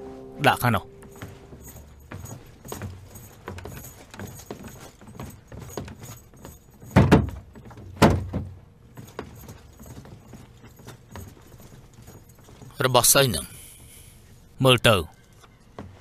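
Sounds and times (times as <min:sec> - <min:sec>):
footsteps on wooden floor: 0:00.0 - 0:13.2
armour clinking: 0:00.5 - 0:13.4
heavy wooden thuds: 0:06.8 - 0:09.5.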